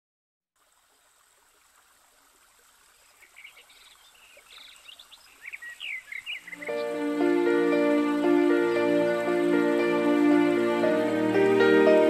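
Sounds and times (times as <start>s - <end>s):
small birds chirping: 3.0s - 7.4s
waterfall rushing: 6.0s - 12.0s.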